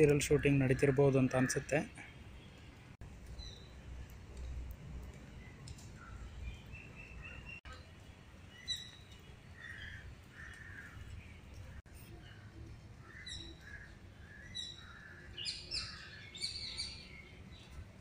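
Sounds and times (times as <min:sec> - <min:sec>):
birds calling: 0:05.3 - 0:18.0.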